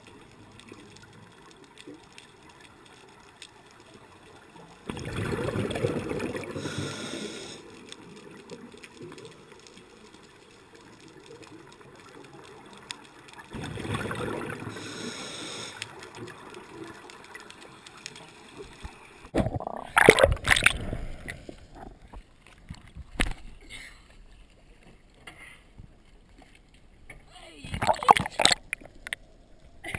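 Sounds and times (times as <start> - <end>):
underwater exhaled bubbles: 4.6 - 9.4, 11.1 - 22.2, 27.7 - 29.2.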